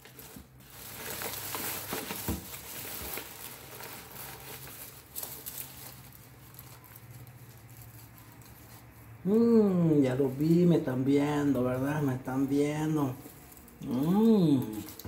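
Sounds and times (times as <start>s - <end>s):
plastic bag rustling: 0.0s - 15.0s.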